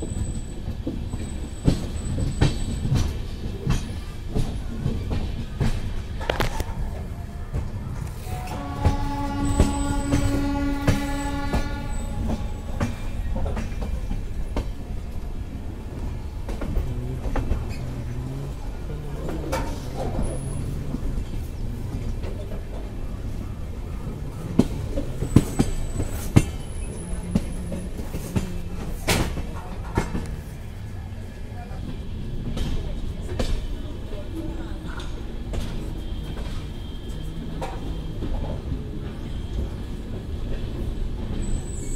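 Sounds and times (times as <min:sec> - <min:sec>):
wheels clacking over rail joints: 0:00.0 - 0:30.5
train wheels rumbling on rails: 0:00.0 - 0:41.9
wheels squeaking: 0:15.6 - 0:28.7.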